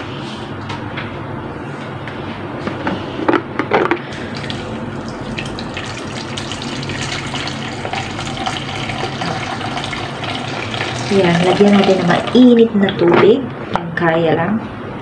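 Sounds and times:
water pouring into steel basin: 4.3 - 12.5.

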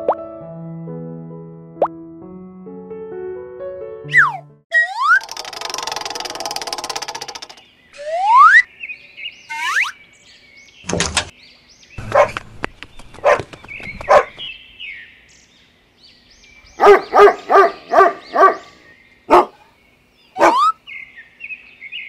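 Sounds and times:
dog barking: 12.0 - 12.4, 13.2 - 14.4, 16.8 - 18.7, 19.3 - 19.6, 20.4 - 20.7.

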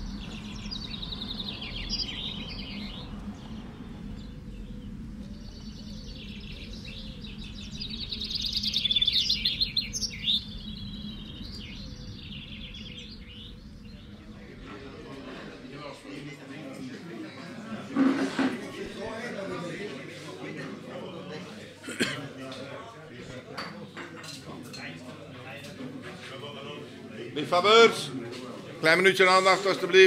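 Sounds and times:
finches singing trilled songs: 0.0 - 14.4
low steady hum: 0.0 - 16.5.

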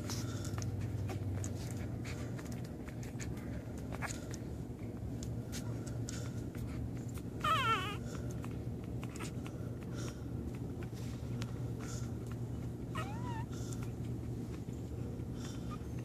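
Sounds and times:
steady low hum: 0.0 - 16.0
puppies whimpering: 6.2 - 16.0.

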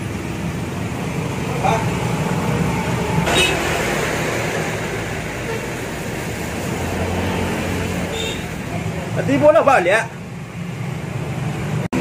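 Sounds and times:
road traffic: 0.0 - 12.0.

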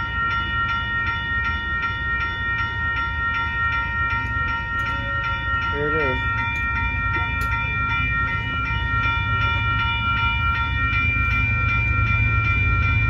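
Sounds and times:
crossing warning bell ringing: 0.0 - 13.0.

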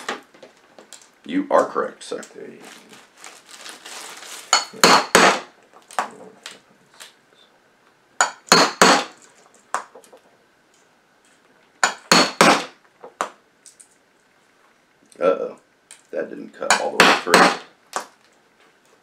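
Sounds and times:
hammer knocking on punch: 8.2 - 9.1, 11.8 - 12.7, 16.7 - 17.7.

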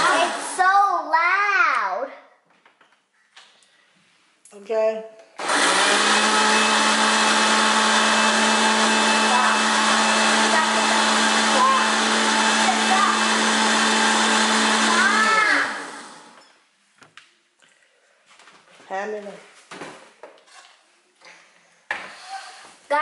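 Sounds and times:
blender motor running: 0.0 - 0.6, 5.4 - 16.4.

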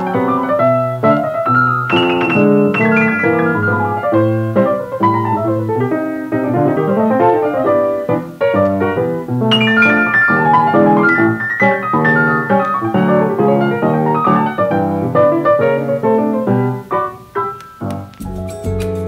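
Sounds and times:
easy-listening piano music: 0.0 - 19.0.

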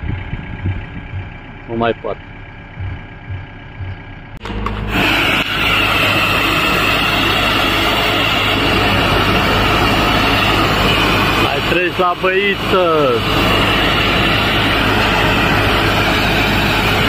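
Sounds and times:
diesel engine idling: 0.0 - 17.0
pressure washer jet hissing: 4.4 - 17.0.

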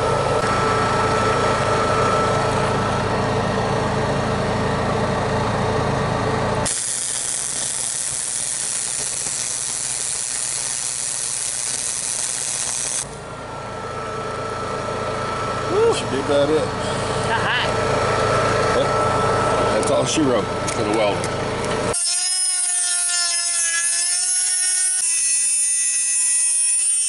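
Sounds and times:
engine hum: 0.0 - 22.0
arc welder hissing and crackling: 6.7 - 13.2.

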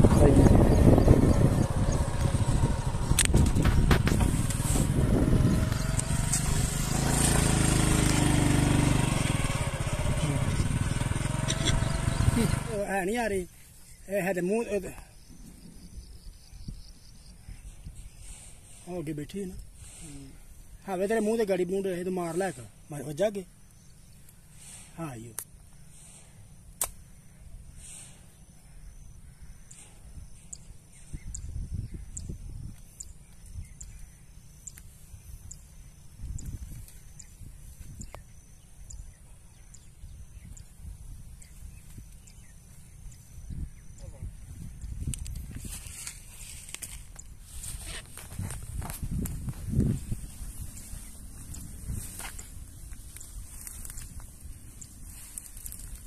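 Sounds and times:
wind rumble on microphone: 0.0 - 12.7, 15.2 - 18.8, 29.8 - 34.4, 35.0 - 56.0
motorcycle engine running: 0.0 - 12.9
rustling through brush: 1.6 - 12.7, 44.9 - 56.0
slingshot snap: 26.7 - 27.1.

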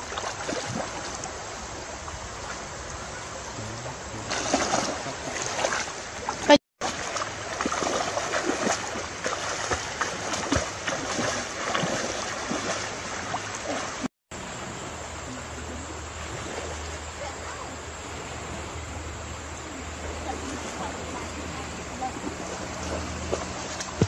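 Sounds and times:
legs splashing through water: 0.0 - 14.1, 19.7 - 24.0
river water washing: 0.0 - 24.0.

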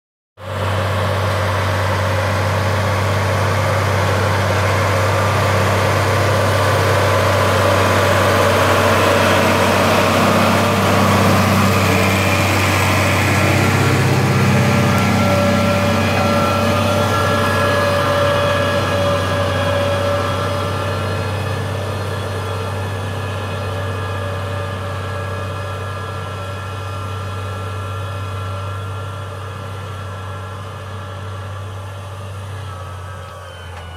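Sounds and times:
tractor diesel engine under load: 0.4 - 33.9.

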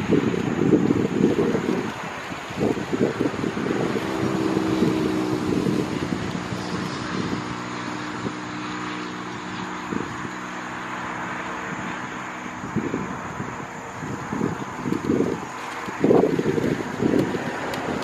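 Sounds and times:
turboprop engines droning: 0.0 - 18.0
wind buffeting microphone: 0.0 - 18.0.

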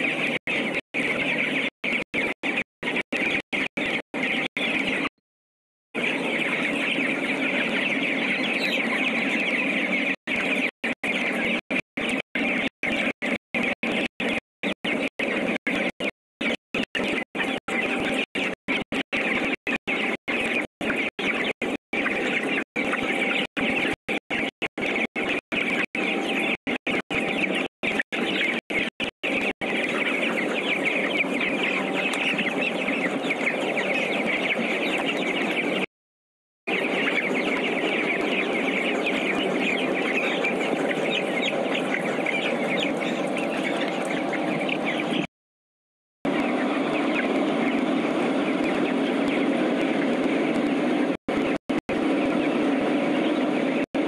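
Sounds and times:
chickens clucking and peeping: 0.0 - 5.1, 6.0 - 35.9, 36.7 - 45.3, 46.3 - 54.0.

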